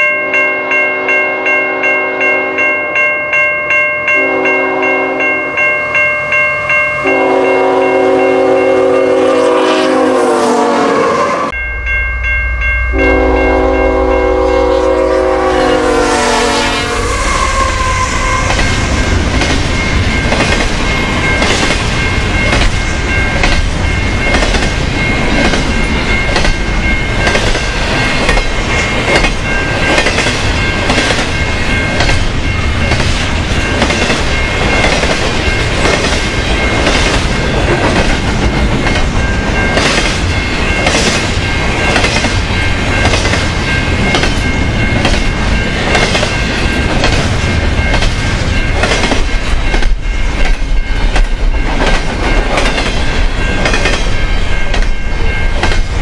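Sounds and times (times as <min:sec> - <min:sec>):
locomotive air horn blasts: 0:04.2 - 0:05.3, 0:07.0 - 0:11.5, 0:12.9 - 0:18.6
train wheels clickety-clack: 0:17.1 - 0:56.0.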